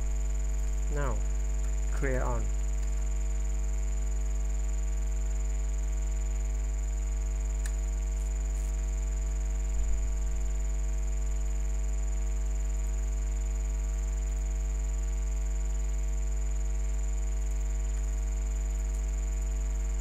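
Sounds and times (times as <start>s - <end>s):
thin high whine: 0.0s - 2.7s
electrical mains hum: 0.0s - 20.0s
sharp click: 7.6s - 7.8s.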